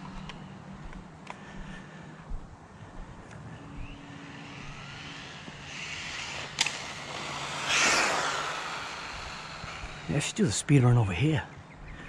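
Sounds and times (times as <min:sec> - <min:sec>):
electric motor whine: 0:03.3 - 0:10.7
loud rushing noise: 0:04.0 - 0:10.8
sharp click: 0:06.6 - 0:06.8.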